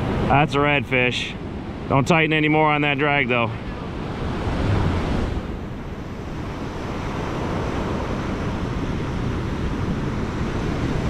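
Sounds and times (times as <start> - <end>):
surf washing onto beach: 0.0 - 11.0
wind buffeting microphone: 3.3 - 11.0.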